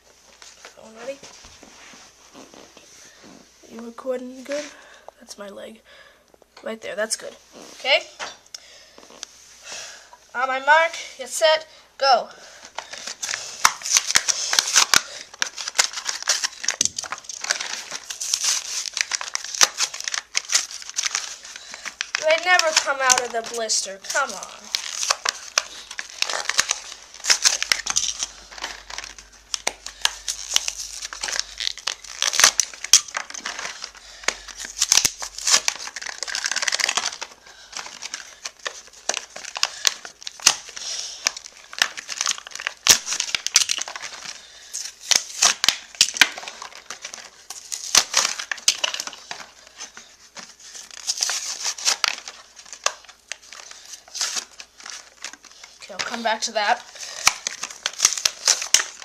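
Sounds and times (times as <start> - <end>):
plastic blister packs crinkling: 12.4 - 59.0
cardboard tearing: 12.8 - 59.0.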